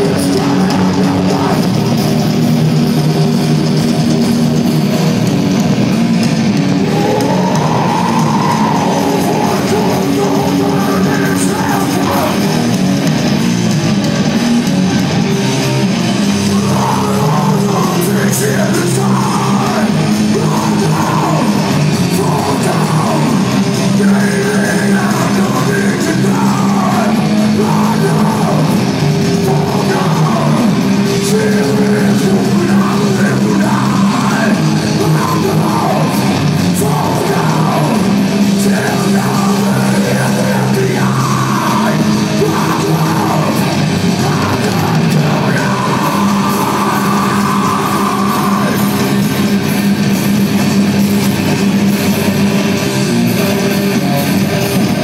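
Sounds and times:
man shouting vocals: 0:00.0 - 0:01.8, 0:06.8 - 0:12.7, 0:16.5 - 0:49.2
heavy metal band playing live: 0:00.0 - 0:55.0.

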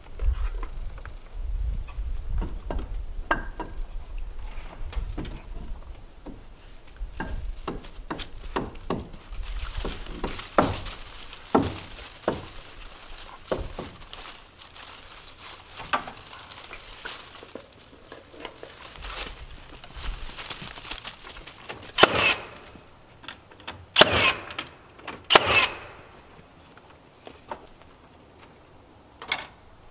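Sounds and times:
tapping and knocking on wood: 0:07.2 - 0:09.2, 0:09.8 - 0:10.9, 0:11.5 - 0:12.6.

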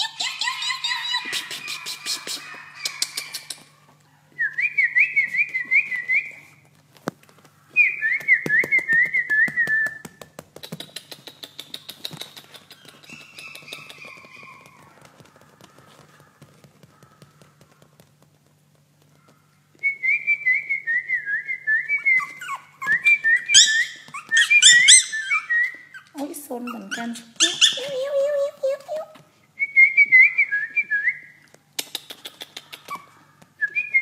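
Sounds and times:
puppy whining: 0:00.0 - 0:04.5, 0:12.1 - 0:16.1, 0:21.8 - 0:29.2, 0:32.2 - 0:34.0.

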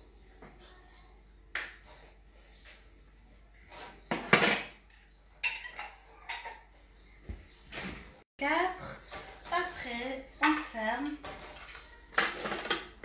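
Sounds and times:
metal utensils clinking on dishes: 0:04.1 - 0:06.7.

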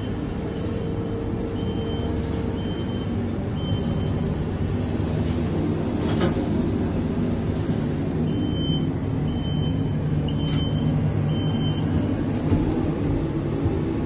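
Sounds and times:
gondola cabin rumbling: 0:10.1 - 0:14.0.

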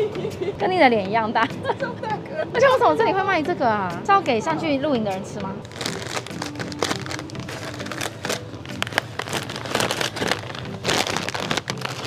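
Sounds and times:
foil bags crinkling: 0:05.6 - 0:12.0.

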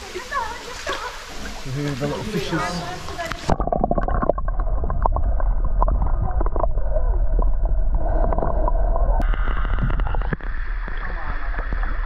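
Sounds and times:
muffled underwater rumble: 0:02.8 - 0:12.0
small underwater clicks: 0:03.1 - 0:04.3.

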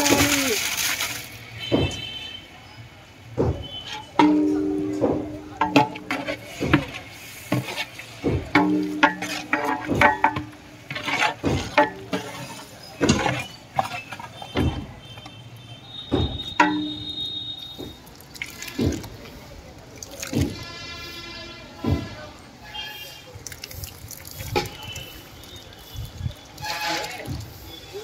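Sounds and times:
metal ladle scraping pot: 0:03.7 - 0:15.4, 0:16.4 - 0:17.2, 0:26.6 - 0:27.9.

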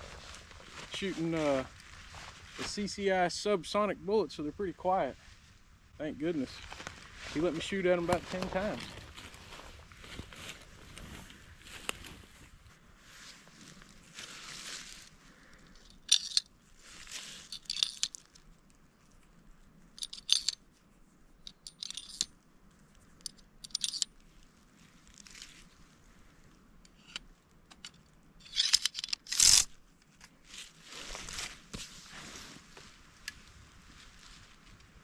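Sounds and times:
rustling of dry leaves: 0:00.0 - 0:04.2, 0:05.0 - 0:26.8, 0:28.7 - 0:35.0
cartridges dropping into port: 0:16.0 - 0:16.4, 0:21.5 - 0:22.3, 0:28.4 - 0:29.7
metal clatter: 0:16.0 - 0:16.4, 0:21.5 - 0:22.3
metallic clicks of rifle magazine: 0:21.4 - 0:22.3, 0:23.2 - 0:24.1, 0:26.9 - 0:30.3.

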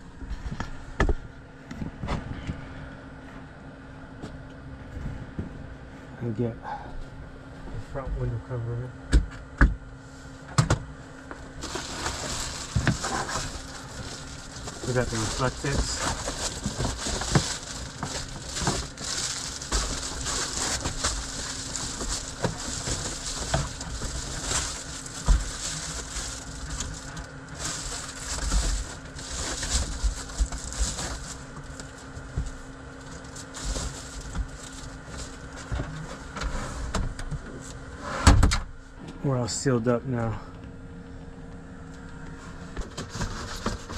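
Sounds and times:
foil insulation crinkling: 0:11.4 - 0:36.3.

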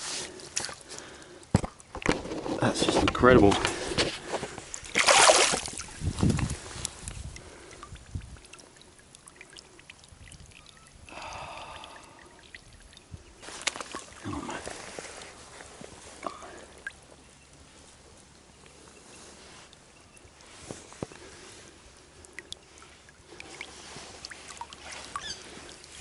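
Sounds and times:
water sloshing and dripping: 0:00.2 - 0:26.0
small water splashes: 0:03.4 - 0:17.1, 0:20.4 - 0:26.0.

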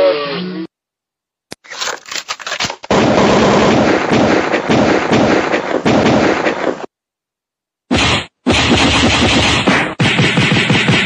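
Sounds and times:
firecrackers banging: 0:03.1 - 0:06.9.

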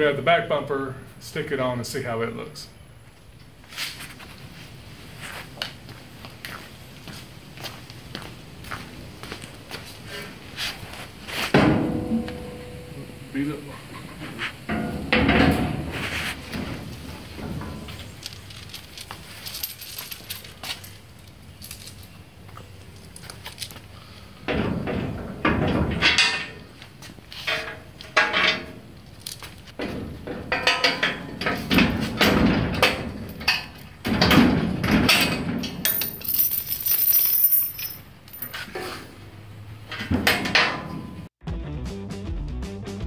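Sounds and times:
metal bumper clanking: 0:11.5 - 0:18.1, 0:39.9 - 0:41.3
bolts and washers rattling: 0:14.6 - 0:22.3, 0:24.5 - 0:26.7, 0:27.4 - 0:38.8, 0:39.8 - 0:41.1.

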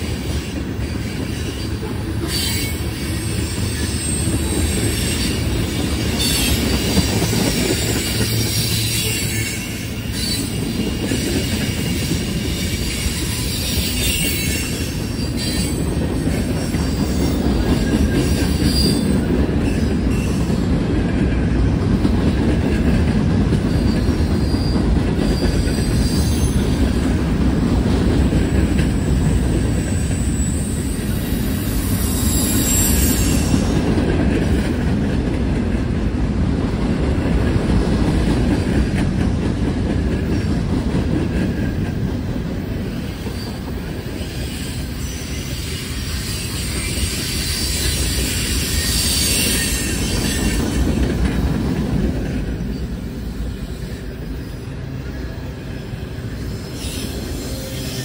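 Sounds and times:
train wheels rumbling and clattering: 0:00.0 - 0:58.0
high-pitched wheel squeal: 0:00.9 - 0:05.4, 0:06.0 - 0:15.8, 0:16.6 - 0:20.6, 0:23.7 - 0:26.9, 0:29.6 - 0:33.8, 0:43.2 - 0:51.0, 0:56.1 - 0:58.0.

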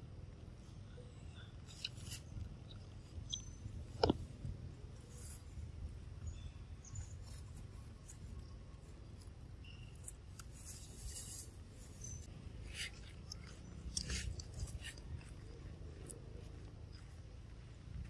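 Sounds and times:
steady low rumble: 0:02.2 - 0:18.0
dry leaves crackling: 0:04.9 - 0:16.6.

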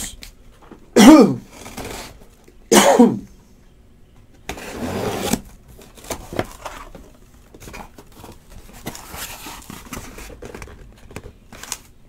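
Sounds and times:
cardboard rustling and scraping: 0:01.5 - 0:02.3, 0:04.4 - 0:11.9.

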